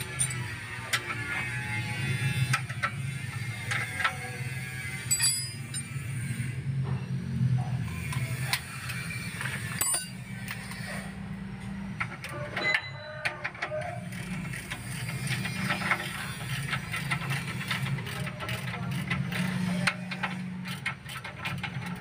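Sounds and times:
wrench clicking on bolts: 0.0 - 1.2, 5.1 - 5.9, 13.4 - 22.0.

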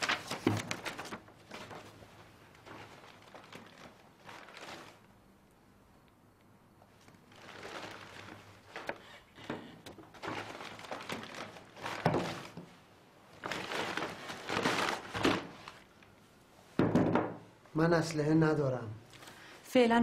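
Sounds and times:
objects rustling and knocking on table: 7.4 - 12.8, 13.4 - 15.9, 16.7 - 17.5.

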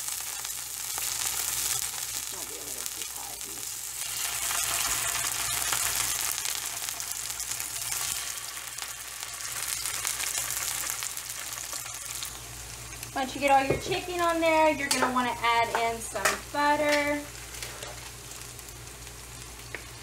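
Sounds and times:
oil sizzling in a frying pan: 0.0 - 20.0.

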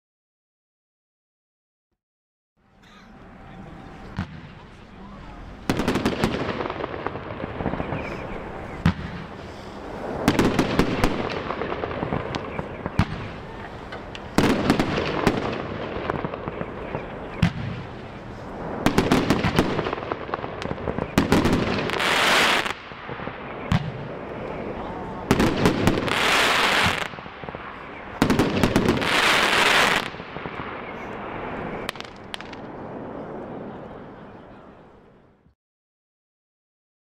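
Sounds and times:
firework stars bursting: 3.1 - 33.6
firework launch thumps: 4.1 - 4.6, 8.8 - 9.4.

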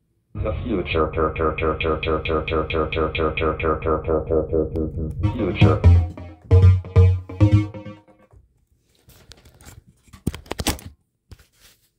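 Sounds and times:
electronic breakbeat music: 0.4 - 8.2.

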